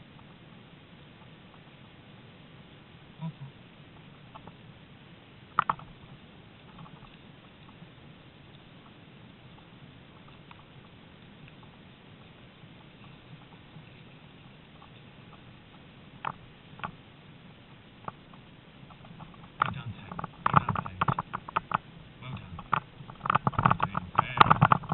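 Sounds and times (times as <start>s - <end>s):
rumble of wheels and running dogs: 0.0s - 24.9s.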